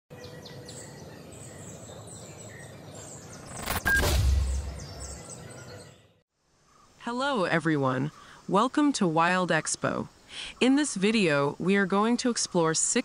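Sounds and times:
nature ambience: 0:00.1 - 0:13.0
whoosh: 0:03.4 - 0:05.2
deep rumbling boom: 0:04.0 - 0:05.2.

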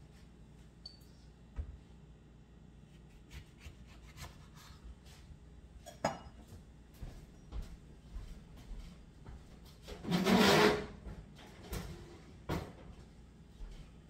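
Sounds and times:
knife cutting lemon: 0:02.9 - 0:04.8.

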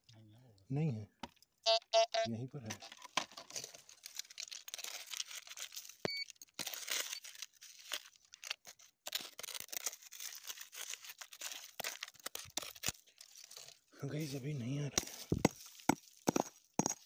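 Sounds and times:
short electronic beep: 0:01.7 - 0:02.3
hand raking through gravel: 0:09.2 - 0:17.0.

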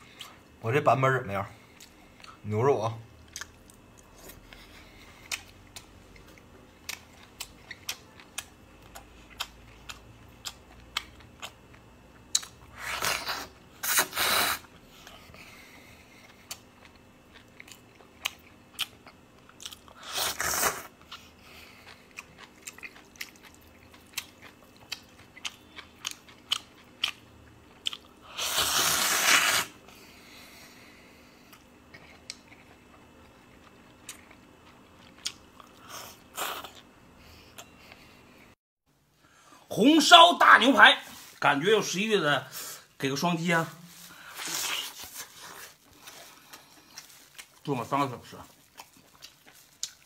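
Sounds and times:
wet chewing with mouth clicks: 0:03.2 - 0:15.5, 0:16.1 - 0:29.6, 0:31.4 - 0:36.9, 0:44.1 - 0:47.8, 0:48.4 - 0:50.0
noodle slurps: 0:28.4 - 0:29.8.

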